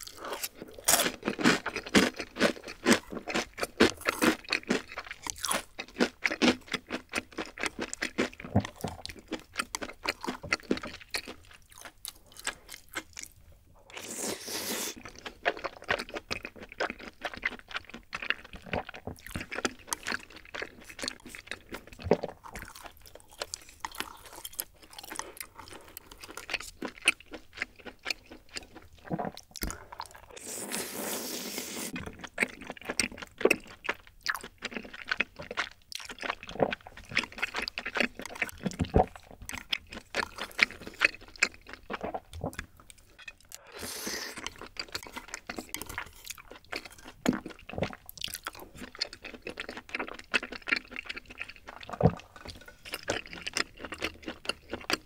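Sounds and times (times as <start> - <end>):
close chewing with wet mouth clicks: 0.0 - 30.5, 31.9 - 55.0
slurping noodles: 13.9 - 15.2, 29.0 - 32.3, 43.6 - 46.9.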